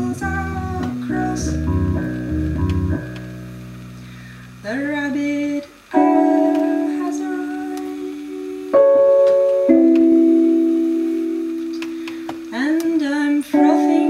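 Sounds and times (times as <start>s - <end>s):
electronic keyboard sustained chords: 0.0s - 12.6s, 13.5s - 14.0s
woman singing wavering note: 13.5s - 14.0s.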